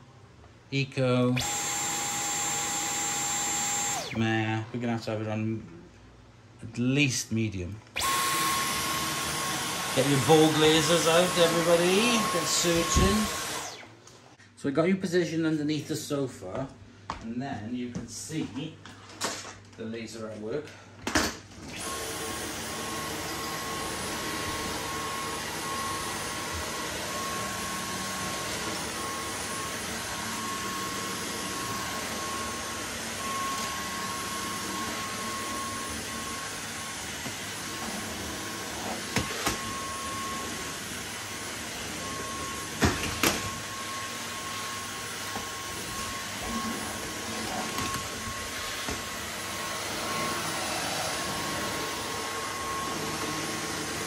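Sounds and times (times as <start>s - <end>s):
vacuum cleaner running: 1.3s - 5.4s, 8.0s - 14.0s, 21.5s - 54.0s.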